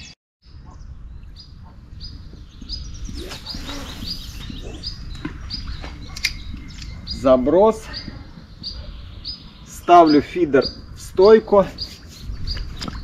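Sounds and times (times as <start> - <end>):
songbirds chirping: 0.0 - 13.0
sharp click: 6.1 - 7.0.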